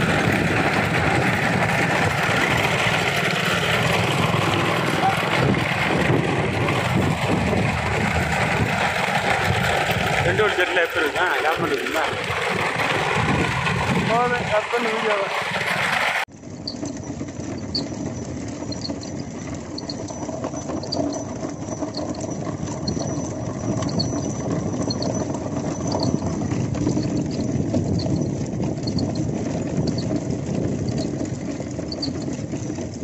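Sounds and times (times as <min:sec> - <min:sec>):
cart rumbling and rattling: 0:00.0 - 0:33.0
hoofbeats: 0:16.6 - 0:33.0.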